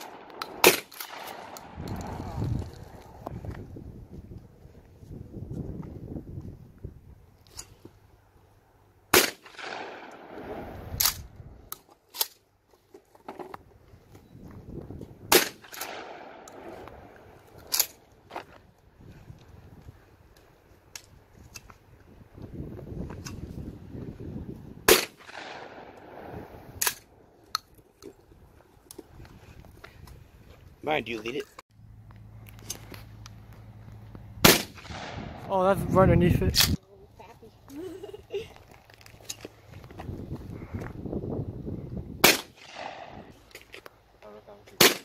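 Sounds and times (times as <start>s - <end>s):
shotgun firing with echo: 0.0s - 1.8s, 9.1s - 10.7s, 15.3s - 16.7s, 24.9s - 26.3s, 34.4s - 35.5s, 42.2s - 43.3s
sharp crack: 0.0s - 2.4s, 9.1s - 12.4s, 15.3s - 16.9s, 24.9s - 27.7s, 34.4s - 35.7s, 42.2s - 43.4s, 44.7s - 45.0s.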